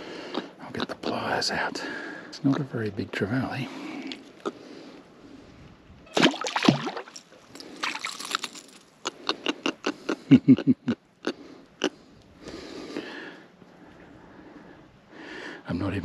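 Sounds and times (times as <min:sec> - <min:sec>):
fish splashing at the surface: 0:06.1 - 0:08.4.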